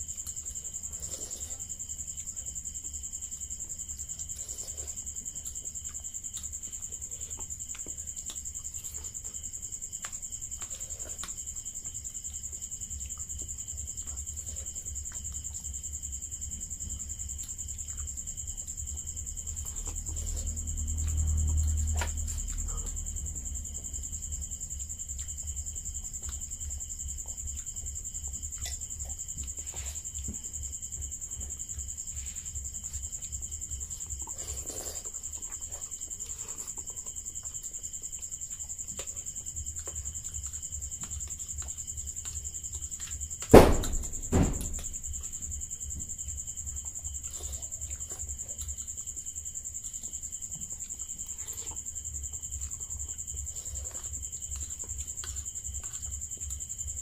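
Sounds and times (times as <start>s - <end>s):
sharp knocks: 43.5s - 45.2s.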